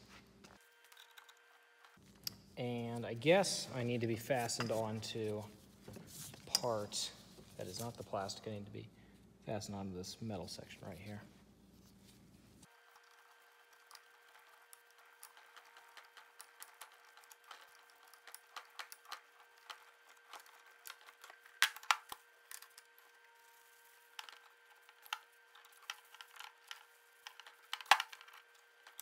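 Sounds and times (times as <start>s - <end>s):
metal parts clicking and tapping: 12.9s - 23.0s, 24.1s - 29.0s.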